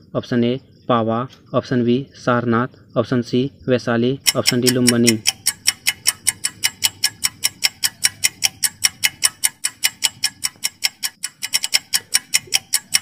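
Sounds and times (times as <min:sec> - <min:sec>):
rapid clock ticking: 0:04.2 - 0:13.0.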